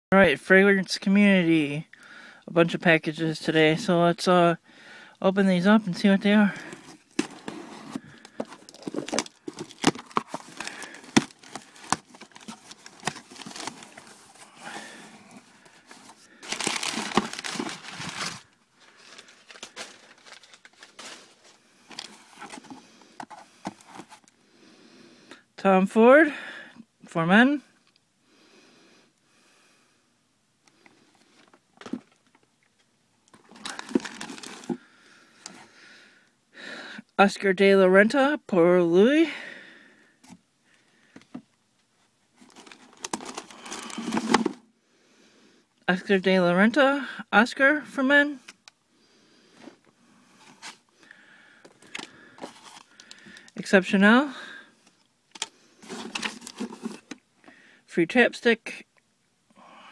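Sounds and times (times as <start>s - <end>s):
packing paper crackling: 6.4s - 24.2s, 33.3s - 34.8s, 42.4s - 44.6s, 55.3s - 57.2s.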